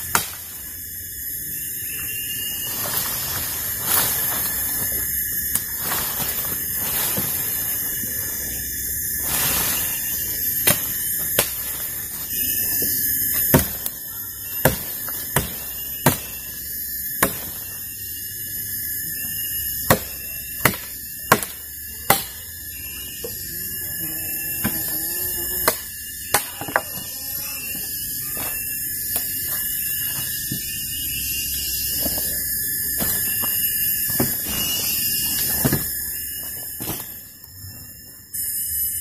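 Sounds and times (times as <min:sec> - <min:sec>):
machete chopping branches: 0:00.0 - 0:00.6, 0:10.6 - 0:11.8, 0:13.3 - 0:13.9, 0:14.6 - 0:16.5, 0:17.2 - 0:17.7, 0:19.8 - 0:22.4, 0:25.6 - 0:26.9
forest insects droning: 0:00.0 - 0:39.0.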